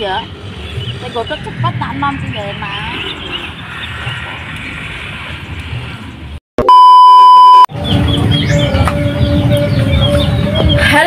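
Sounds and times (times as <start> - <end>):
outdoor background noise: 0.0 - 6.4, 7.1 - 11.0
high test-pattern beep: 6.6 - 7.7.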